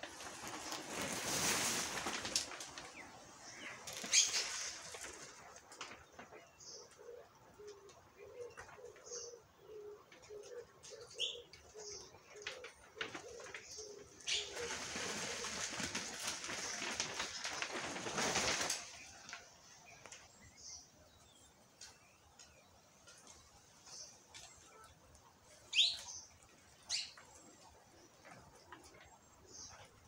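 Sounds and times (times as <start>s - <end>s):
bird splashing and wing-fluttering: 0.0s - 6.3s, 12.5s - 19.6s
dove cooing: 6.8s - 16.6s.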